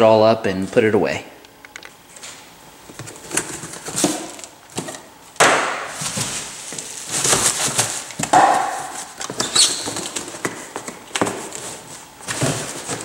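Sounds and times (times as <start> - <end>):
bubble wrap crinkling: 5.8 - 10.4
cardboard boxes knocking and scraping: 5.8 - 13.0
loud rustle: 5.9 - 8.2.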